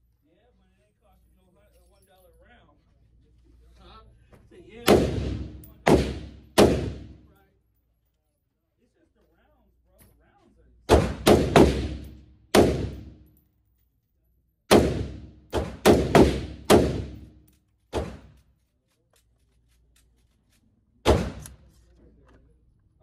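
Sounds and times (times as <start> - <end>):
gunshots echoing indoors: 4.8 - 7.3, 10.8 - 13.4, 14.7 - 18.4, 21.0 - 21.6.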